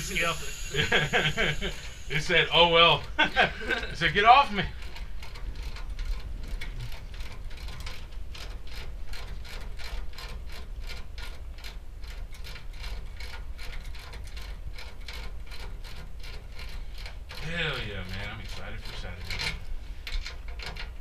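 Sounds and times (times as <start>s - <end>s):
low hum: 0.0s - 7.7s.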